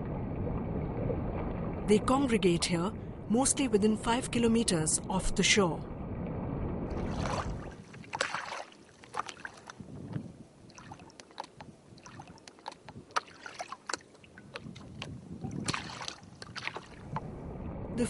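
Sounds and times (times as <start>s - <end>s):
sea water splashing and lapping: 0.0s - 3.3s, 6.0s - 17.8s
large splashes: 6.9s - 9.7s.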